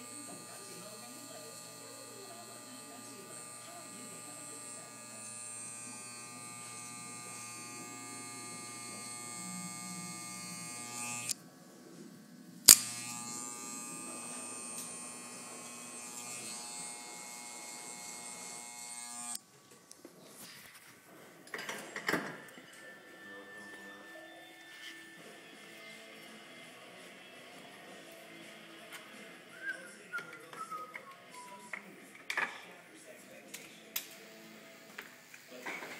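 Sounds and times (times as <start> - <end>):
electric hair clippers buzzing: 0.0 - 11.4, 12.7 - 19.4, 34.0 - 35.6
trimmer buzzing: 0.0 - 11.4, 12.7 - 19.4.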